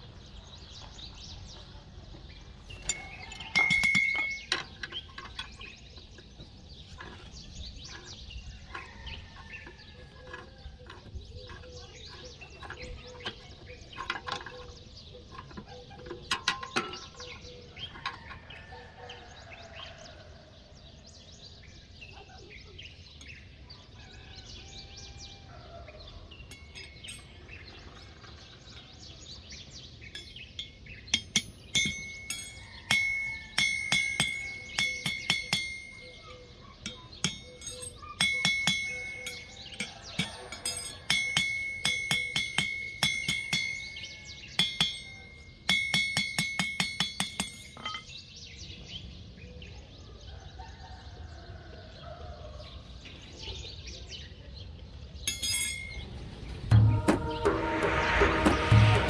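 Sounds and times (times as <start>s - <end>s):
metal clinks: 2.7s - 5.8s, 26.4s - 28.3s, 30.0s - 48.2s, 55.2s - 56.2s
hammer striking metal on anvil: 30.2s - 48.1s.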